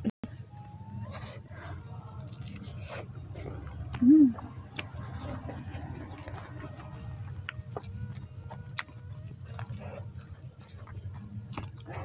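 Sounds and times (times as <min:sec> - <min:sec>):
low steady hum: 0:00.0 - 0:12.0
chewing clicks: 0:03.8 - 0:12.0.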